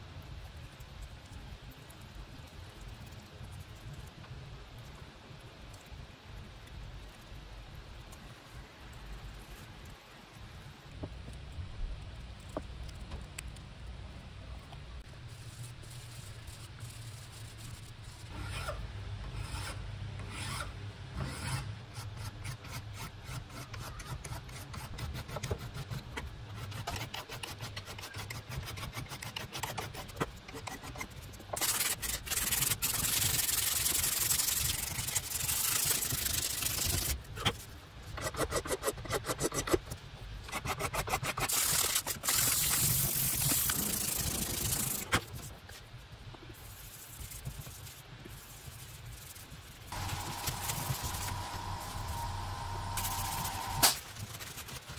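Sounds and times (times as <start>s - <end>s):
abrasive paper sanding strokes: 15.2s - 37.6s, 40.6s - 45.5s, 46.6s - 54.9s
file rasping on wood: 18.3s - 33.2s.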